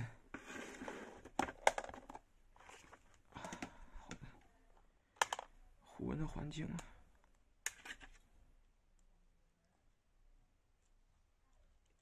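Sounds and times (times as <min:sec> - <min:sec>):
plastic rustling and scraping: 0:00.3 - 0:03.8.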